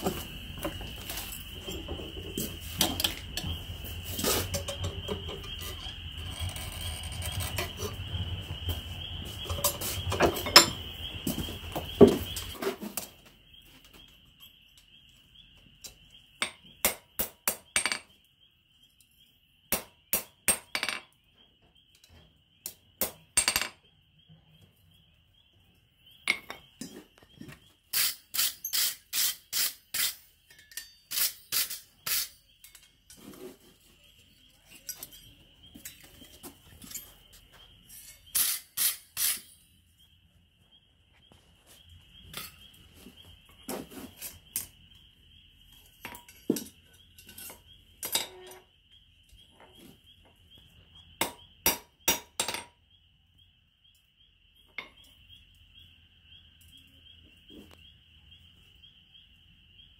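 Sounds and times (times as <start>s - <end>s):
hammer striking iron on anvil: 51.2s - 52.7s.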